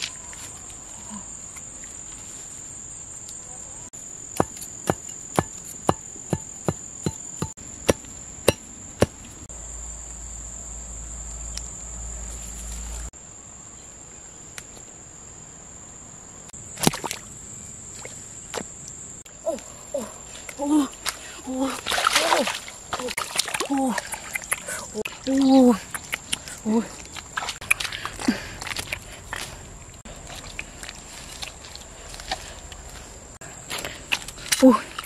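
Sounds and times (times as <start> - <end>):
insects trilling: 0.0 - 35.0
sharp knocks: 4.4 - 9.2.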